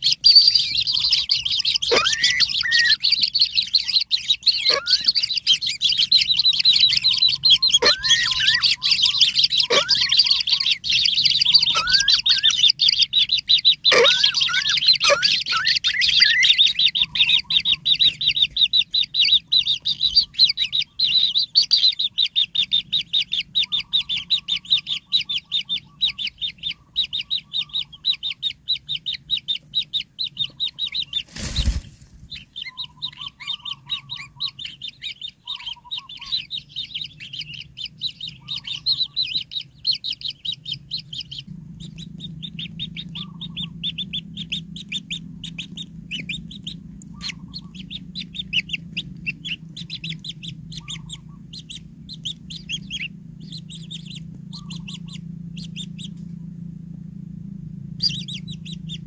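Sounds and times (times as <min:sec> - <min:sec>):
nestlings chirping: 0:00.0 - 0:56.4, 0:57.8 - 0:59.0.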